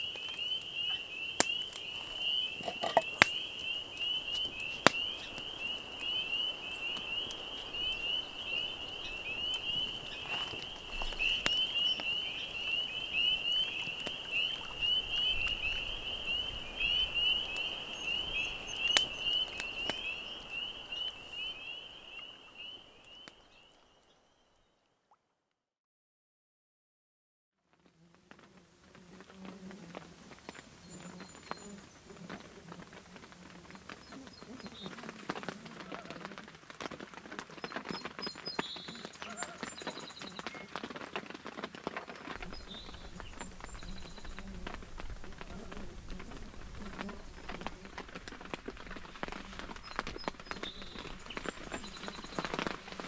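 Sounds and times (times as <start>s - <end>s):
frogs peeping in chorus: 0.0s - 24.2s, 30.3s - 41.0s, 42.3s - 53.0s
sharp cracks: 1.3s - 6.2s.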